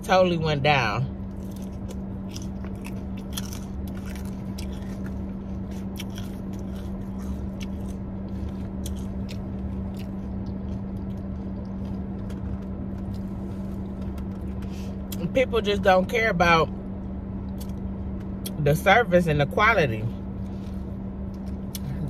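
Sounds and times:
steady low hum: 0.0s - 22.0s
mouth chewing and smacking: 1.3s - 15.2s, 21.3s - 22.0s.

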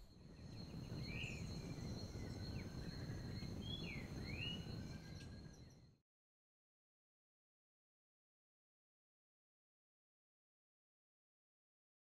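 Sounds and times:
low rumbling background noise: 0.0s - 5.9s.

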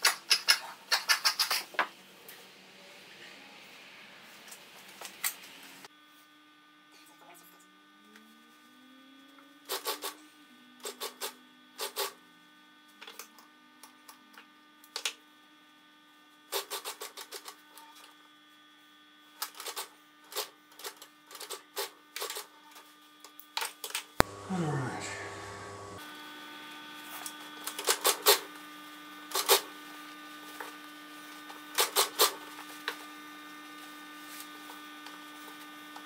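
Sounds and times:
sewing machine motor humming: 24.2s - 26.0s.

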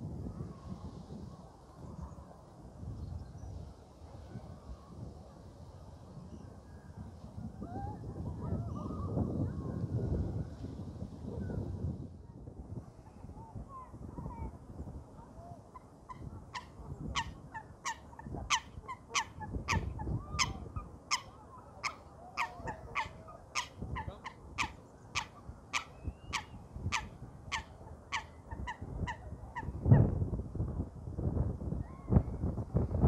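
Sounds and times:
wind on microphone: 0.0s - 33.0s
waterfowl calling: 16.1s - 29.8s.

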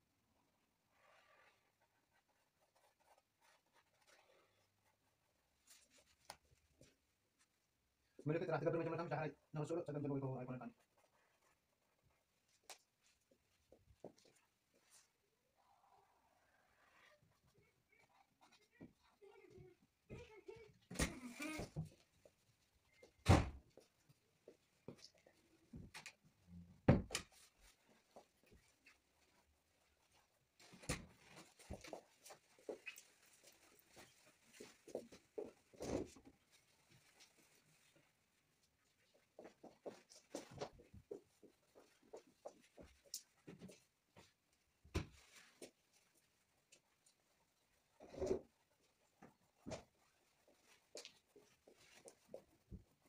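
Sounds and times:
faint small rustles: 0.4s - 8.2s, 27.2s - 53.0s.

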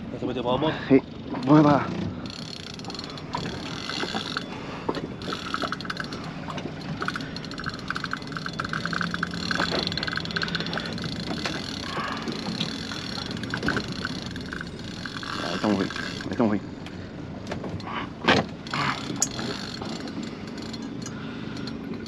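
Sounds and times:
rapid ratchet-like clicking: 2.2s - 16.3s, 18.6s - 22.0s.

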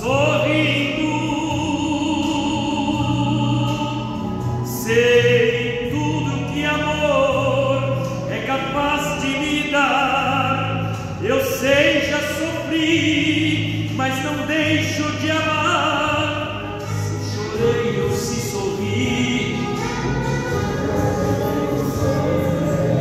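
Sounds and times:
instrumental accompaniment: 0.0s - 23.0s
man singing operatic tenor: 0.0s - 23.0s.

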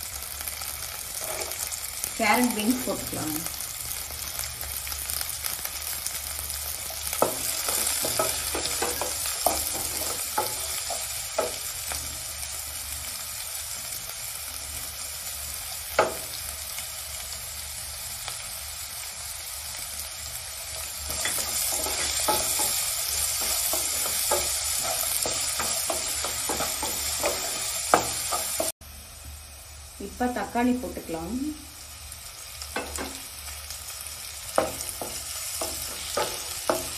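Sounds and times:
vegetables sizzling in hot oil: 0.0s - 36.9s
spatula scraping and tapping pan: 1.2s - 1.7s, 7.1s - 11.7s, 21.1s - 28.7s, 34.6s - 36.9s.

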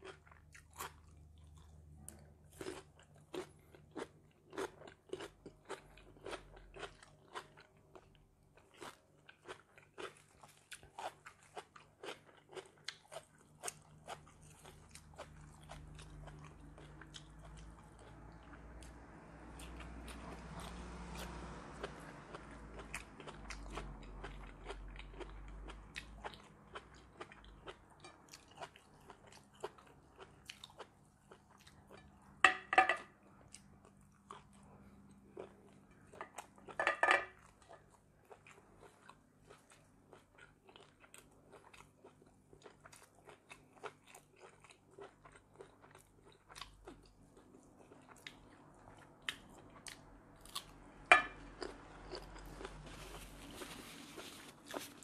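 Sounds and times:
person chewing with mouth clicks: 0.0s - 32.4s, 33.4s - 55.0s
crunching bites: 50.4s - 55.0s.

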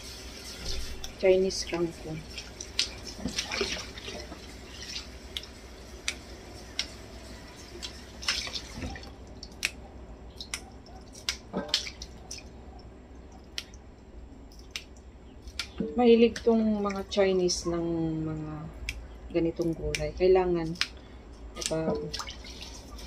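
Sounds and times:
water drips and splashes: 0.0s - 17.8s, 21.5s - 23.0s
clicks of wet leaves handled: 0.6s - 7.0s, 7.8s - 12.6s, 14.5s - 17.6s, 19.6s - 23.0s.

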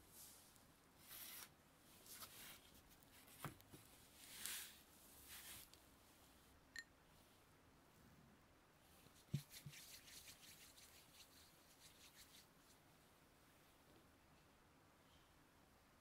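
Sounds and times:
light quick rustling strokes: 9.0s - 12.8s.

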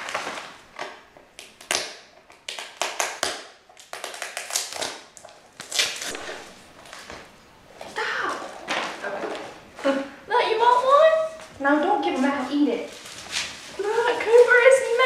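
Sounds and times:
tissue paper crinkling: 10.7s - 15.0s.

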